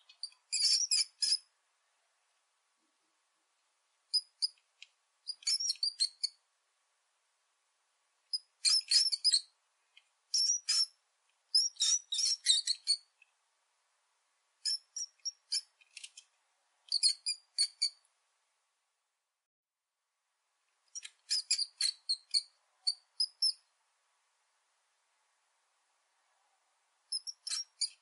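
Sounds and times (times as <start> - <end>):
high-pitched chirping animal calls: 0.1 - 1.5, 5.3 - 6.4, 8.3 - 9.5, 10.3 - 13.1, 16.9 - 18.0, 21.0 - 23.7, 27.1 - 28.0.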